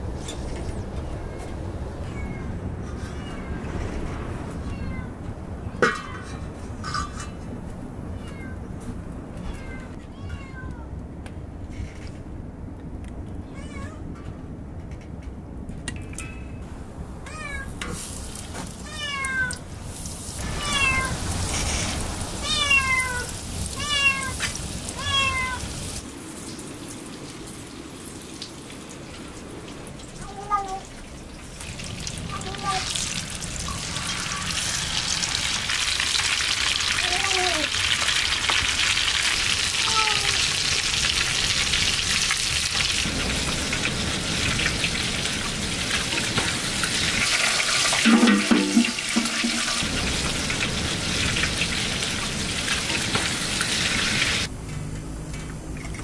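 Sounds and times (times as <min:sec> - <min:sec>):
cat meowing: 0:02.0 - 0:03.6, 0:04.5 - 0:05.2, 0:08.1 - 0:08.6, 0:09.4 - 0:10.9, 0:13.4 - 0:14.1, 0:17.2 - 0:17.8, 0:18.8 - 0:19.6, 0:20.4 - 0:21.3, 0:22.4 - 0:25.7, 0:30.2 - 0:30.9, 0:32.3 - 0:33.0, 0:36.9 - 0:37.8, 0:39.8 - 0:40.5
wood fire crackling: 0:15.6 - 0:30.2, 0:30.8 - 0:48.1, 0:49.7 - 0:56.0.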